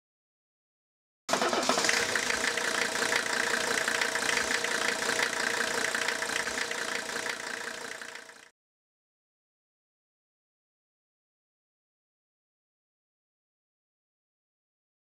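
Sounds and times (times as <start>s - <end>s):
diesel engine running: 1.3s - 8.5s.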